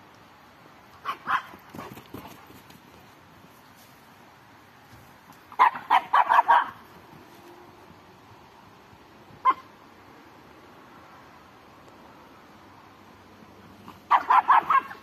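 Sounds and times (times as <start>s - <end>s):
dog barking: 5.6s - 6.8s, 14.1s - 15.0s.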